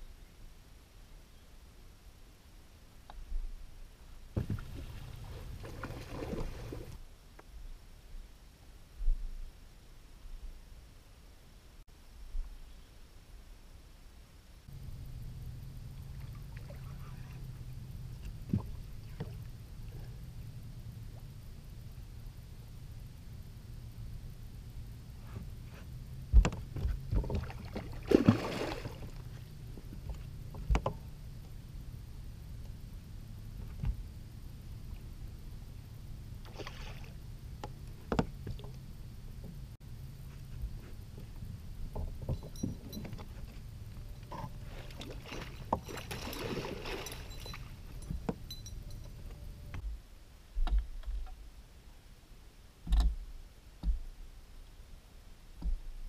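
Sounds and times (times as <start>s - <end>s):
low thumps: 4.3s - 5.7s, 26.2s - 28.5s
fish splashing water: 27.2s - 29.2s, 44.7s - 48.0s
fish splashing at surface: 27.6s - 29.2s.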